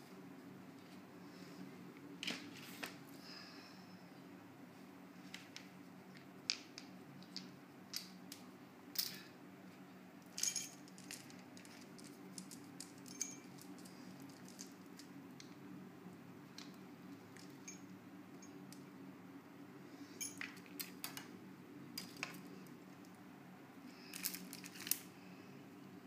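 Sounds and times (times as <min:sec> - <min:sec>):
low room hum: 0:00.0 - 0:26.0
small hard objects clinking: 0:10.3 - 0:15.1, 0:24.1 - 0:25.0.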